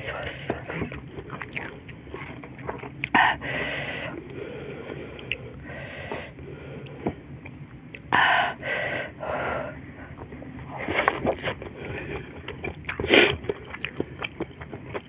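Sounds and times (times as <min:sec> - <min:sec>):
person chewing: 0:00.0 - 0:03.4, 0:04.1 - 0:05.6, 0:10.1 - 0:15.0
wet chewing clicks: 0:00.2 - 0:03.2, 0:05.1 - 0:05.6, 0:10.1 - 0:15.0.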